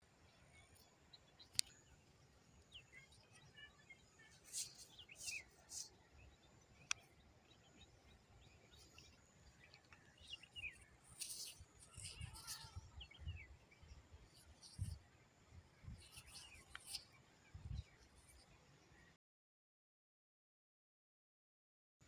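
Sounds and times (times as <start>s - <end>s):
faint bird chirps: 0.0s - 19.2s
stones clicking and rustling: 8.7s - 12.8s.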